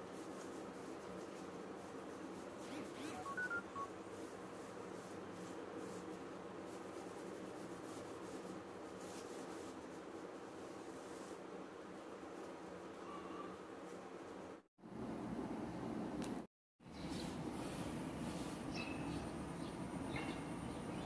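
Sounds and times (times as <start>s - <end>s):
hand rubbing paper on cloth: 0.0s - 3.3s, 4.0s - 13.0s
short electronic beeps: 3.1s - 3.9s.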